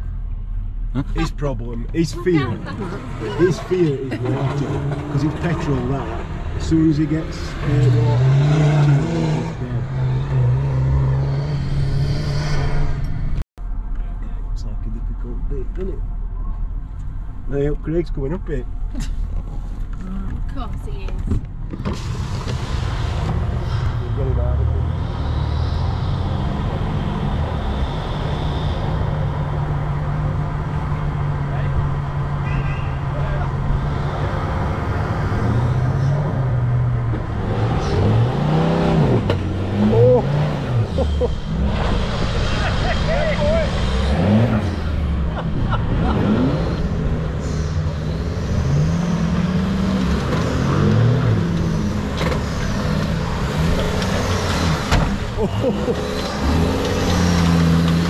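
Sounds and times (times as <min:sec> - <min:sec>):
car engine running: 0:00.0 - 0:11.3
car engine revving under load: 0:00.0 - 0:13.5, 0:21.3 - 0:58.0.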